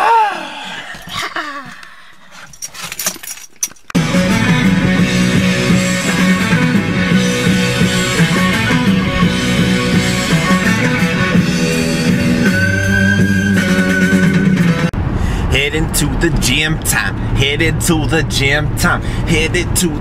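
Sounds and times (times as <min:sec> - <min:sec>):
rock music with electric guitar: 0:04.0 - 0:14.9.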